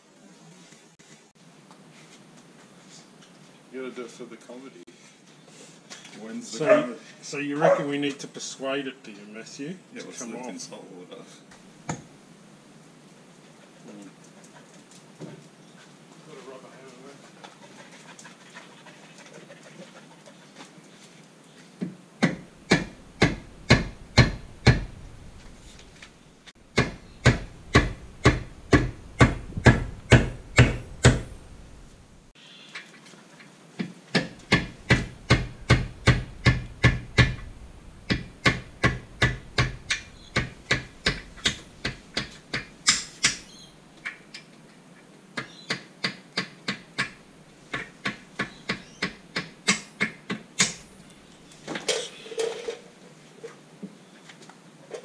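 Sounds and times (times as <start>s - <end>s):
mallet hammering metal pin: 26.8s - 31.3s.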